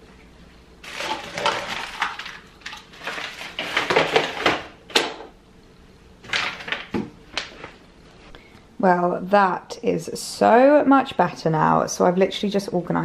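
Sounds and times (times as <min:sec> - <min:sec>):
plastic bottles clattering: 0:00.8 - 0:05.3, 0:06.2 - 0:07.5.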